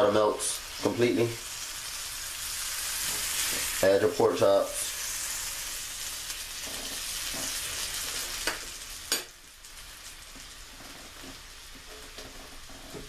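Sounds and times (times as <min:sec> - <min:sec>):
pork chops sizzling in a frying pan: 0:00.0 - 0:13.0.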